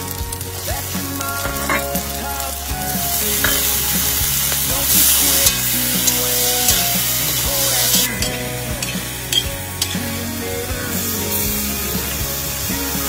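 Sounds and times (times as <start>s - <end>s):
food sizzling in a wok: 0.0s - 13.0s
metal spatula scraping wok: 1.4s - 10.1s.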